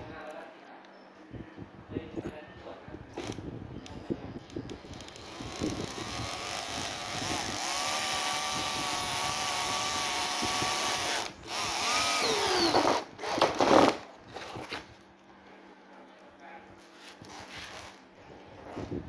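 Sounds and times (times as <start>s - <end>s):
cordless drill motor whining: 3.2s - 13.9s.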